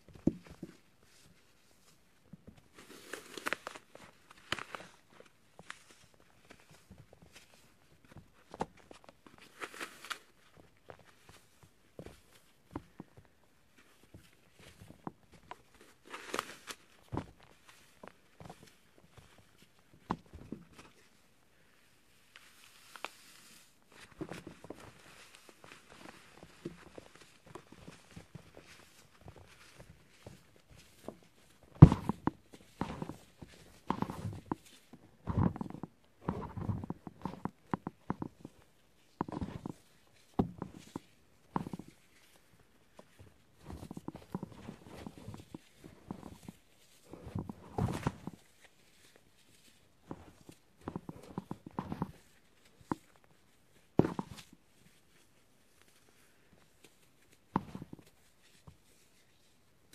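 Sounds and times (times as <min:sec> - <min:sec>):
floral foam crunching and crackling: 0:02.6 - 0:08.1.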